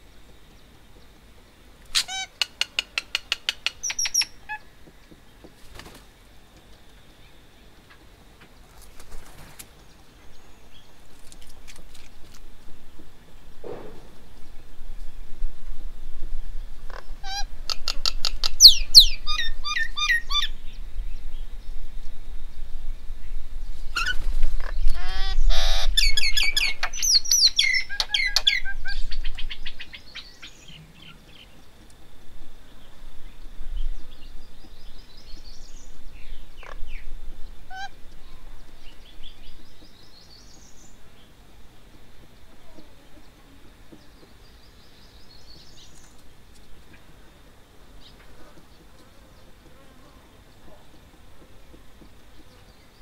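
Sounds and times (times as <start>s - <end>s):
birds chattering calls: 1.8s - 12.0s, 23.7s - 53.0s.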